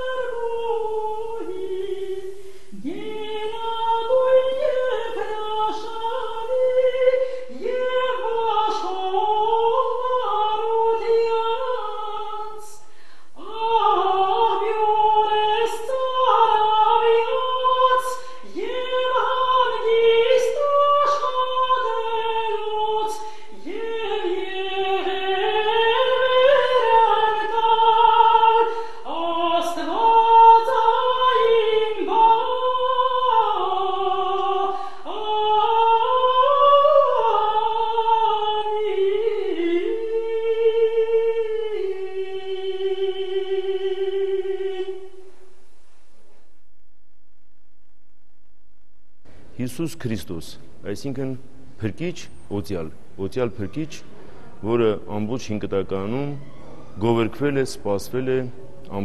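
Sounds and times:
woman singing unaccompanied: 0.0 - 45.3.

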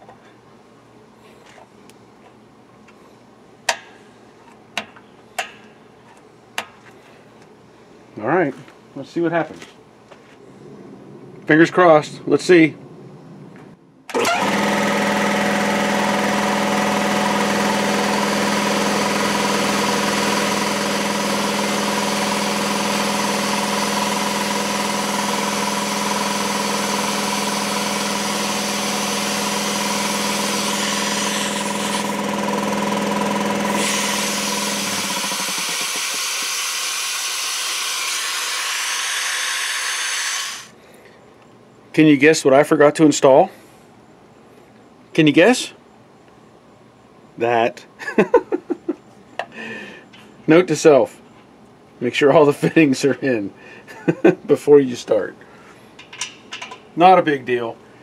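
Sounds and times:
air compressor running: 14.1 - 40.8
compressor hiss: 33.8 - 40.8.

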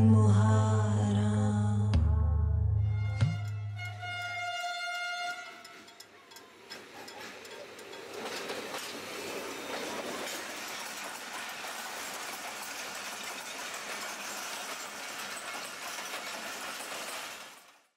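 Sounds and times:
train wheels clattering over rails: 5.0 - 17.9.

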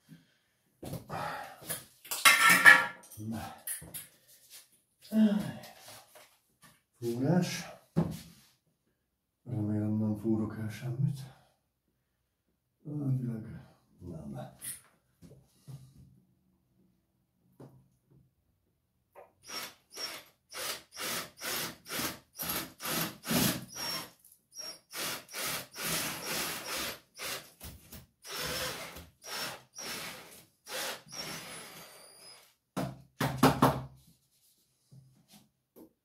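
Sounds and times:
hand tool rasping on wall: 19.5 - 24.1.

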